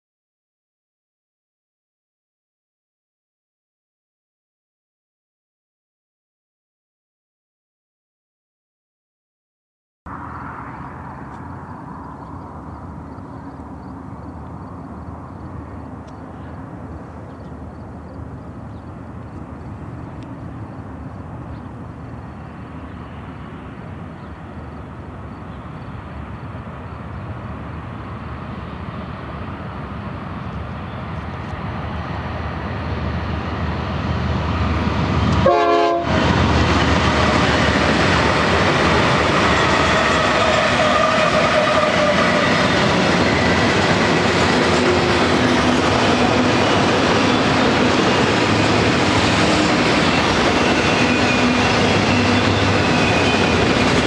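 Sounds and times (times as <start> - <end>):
diesel locomotive engine rumble: 10.1 - 54.0
freight cars rolling: 36.2 - 54.0.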